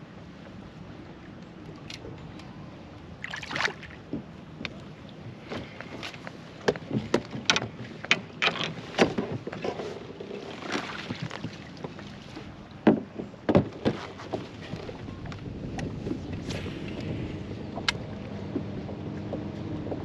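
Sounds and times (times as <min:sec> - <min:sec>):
water noise: 0:00.0 - 0:20.0
wind noise: 0:14.6 - 0:19.1.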